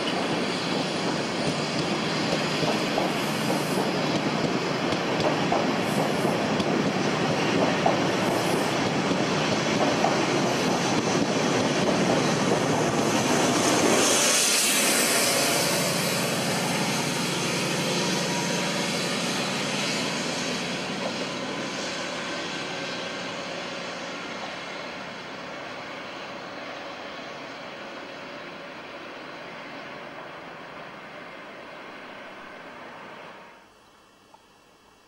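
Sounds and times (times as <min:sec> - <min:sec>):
train wheels clattering on rails: 0:00.0 - 0:22.0.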